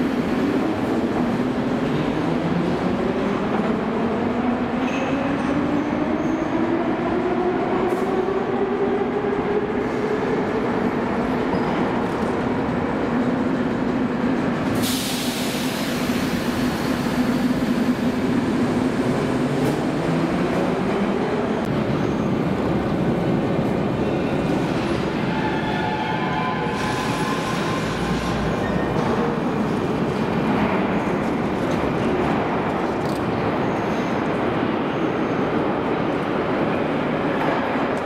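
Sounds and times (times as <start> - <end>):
loud hiss: 14.8 - 17.3.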